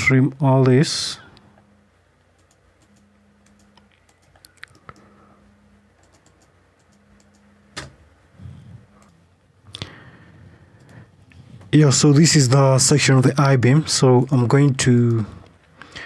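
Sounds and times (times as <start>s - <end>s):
mouse and keyboard clicks: 6.0s - 7.9s.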